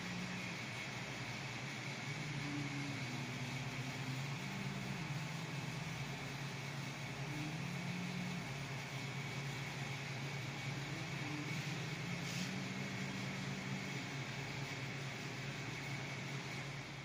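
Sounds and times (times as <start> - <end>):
oven hum and hiss: 0.0 - 17.0.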